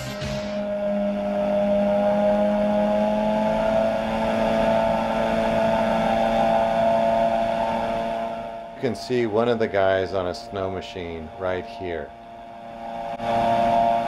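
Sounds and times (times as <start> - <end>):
ultralight engine droning: 0.0 - 14.0.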